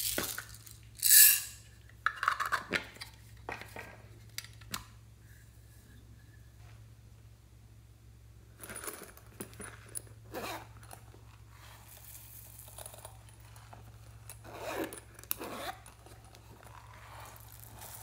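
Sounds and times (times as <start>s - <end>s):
steady low hum: 2.9s - 18.0s
handling rustles: 8.6s - 18.0s
zipper rasping: 10.3s - 10.9s, 14.4s - 18.0s.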